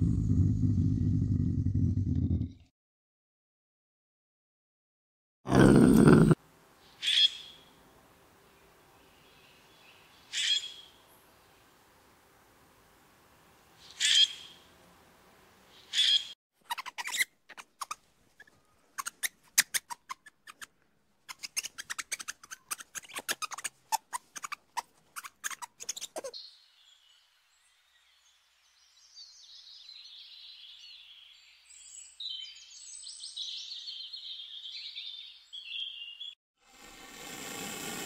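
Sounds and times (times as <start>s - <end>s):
small birds chirping: 15.8s - 36.4s
lemur clicks and chirps: 16.0s - 20.7s, 21.3s - 26.4s.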